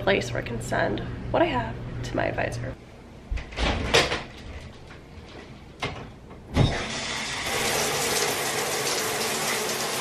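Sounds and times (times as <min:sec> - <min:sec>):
shower water spraying: 0:06.9 - 0:10.0.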